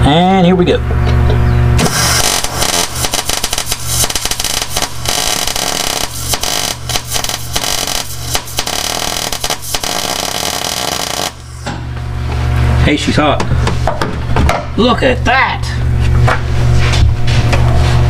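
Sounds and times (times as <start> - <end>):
welder humming low: 1.0 - 13.0
welder arc crackling: 1.8 - 11.6.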